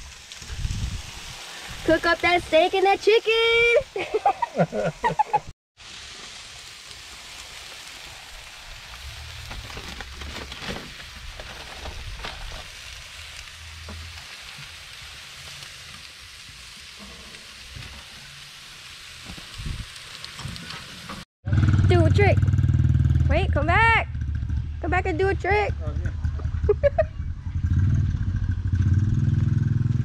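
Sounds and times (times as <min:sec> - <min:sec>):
meat sizzling on grill: 0:00.0 - 0:21.3.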